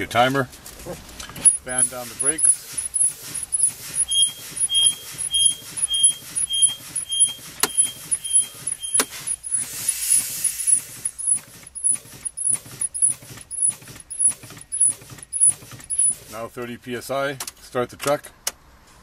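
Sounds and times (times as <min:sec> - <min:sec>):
air brake puffs: 0:01.0 - 0:16.5
high beep: 0:01.4 - 0:09.6
long hiss of air: 0:09.1 - 0:11.1.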